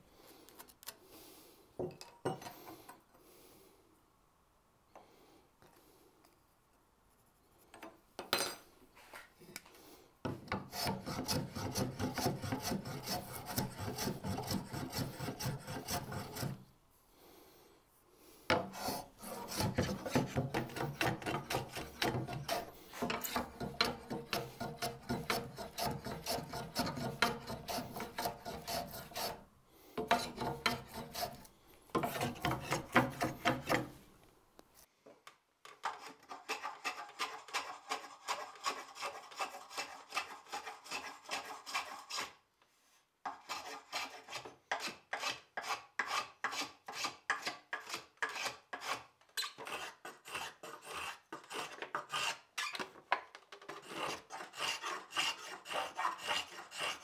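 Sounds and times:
hand plane rasping on wood: 10.5s - 16.6s, 18.5s - 29.4s, 30.0s - 33.9s, 35.8s - 42.4s, 43.3s - 52.5s, 53.7s - 57.0s.

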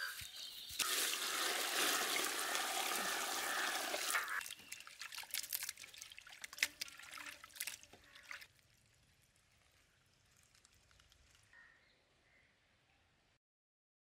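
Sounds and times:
splashing water: 0.7s - 11.1s
water pouring into a vessel: 0.8s - 11.5s.

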